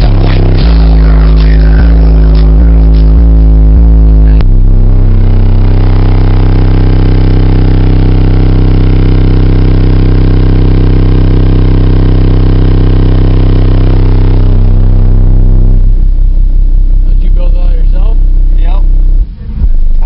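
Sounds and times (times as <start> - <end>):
distorted loud bass note: 0.0 - 20.0.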